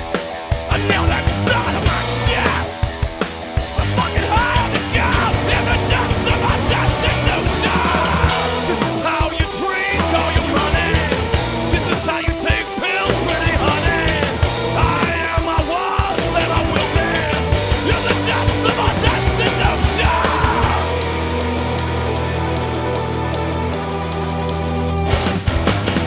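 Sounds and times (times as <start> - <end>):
driving drum beat: 0.0 - 26.0
punk rock song: 0.0 - 26.0
shouted vocals: 0.7 - 2.9, 3.8 - 21.2.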